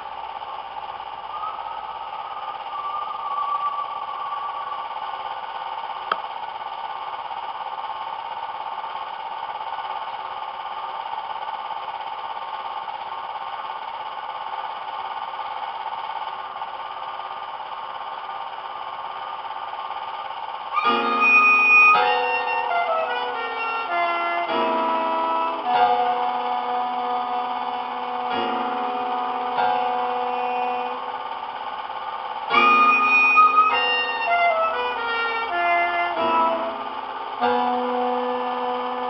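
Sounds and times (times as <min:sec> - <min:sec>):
drone of held tones: 0:00.0 - 0:08.3, 0:19.4 - 0:39.0.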